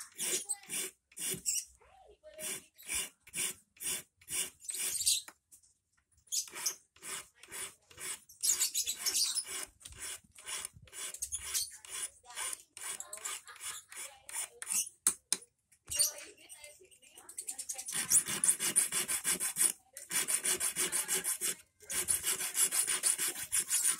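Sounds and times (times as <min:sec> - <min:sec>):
hand file rasping on steel wire: 0:00.0 - 0:01.6, 0:02.3 - 0:05.2, 0:06.4 - 0:14.9, 0:17.8 - 0:23.9.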